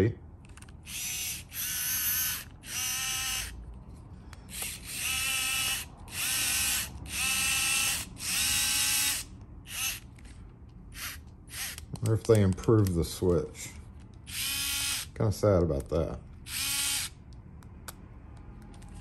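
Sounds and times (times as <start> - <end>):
electric screwdriver motor whirring: 0.8 - 3.6, 4.5 - 10.3, 10.9 - 11.9, 14.2 - 15.1, 16.5 - 17.2.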